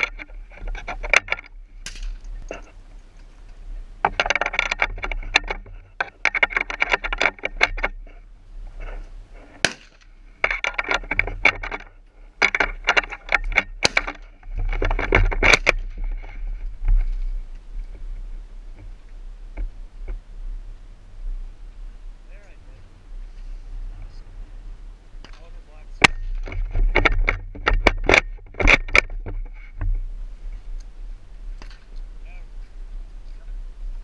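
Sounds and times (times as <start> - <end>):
rifle bolt clicking and rattling: 4.0 - 8.0, 9.6 - 15.8.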